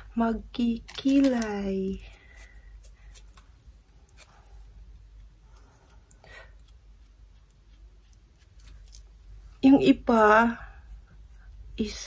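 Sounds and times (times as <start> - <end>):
makeup tools scratching and clicking: 0.6 - 4.5, 5.2 - 9.3.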